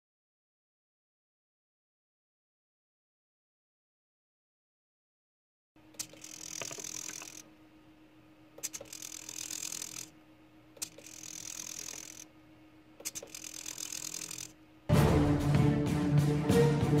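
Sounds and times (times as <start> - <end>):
steady low hum: 5.8 - 15.6
motor click: 5.9 - 7.5, 8.6 - 10.1, 10.8 - 12.3, 13.0 - 14.6
servo motor whirring: 6.0 - 7.4, 8.6 - 10.1, 10.8 - 12.3, 13.0 - 14.6.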